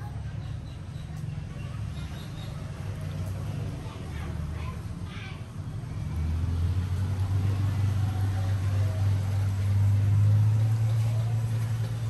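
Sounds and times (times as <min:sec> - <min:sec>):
low motor hum: 0:05.8 - 0:12.0.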